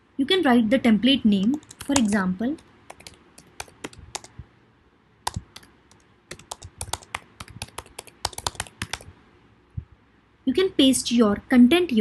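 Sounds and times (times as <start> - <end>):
typing on keyboard: 1.4 - 4.4, 5.2 - 9.1.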